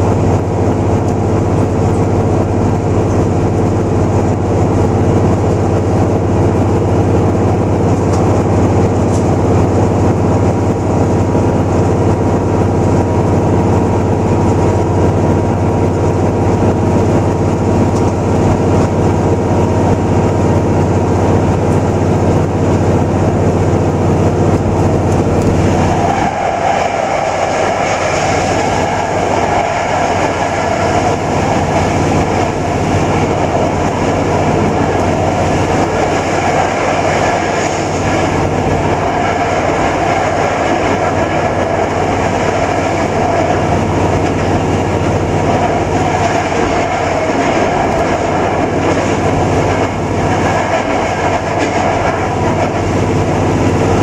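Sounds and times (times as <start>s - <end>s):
railcar engine running: 0.0s - 54.0s
wheels rumbling on rail: 0.0s - 54.0s.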